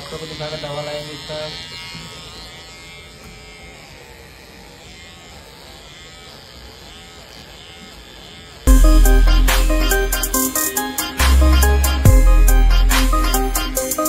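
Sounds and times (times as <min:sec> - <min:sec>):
electric pet clippers buzzing: 0:00.0 - 0:14.0
loud music with heavy beat: 0:08.7 - 0:14.0.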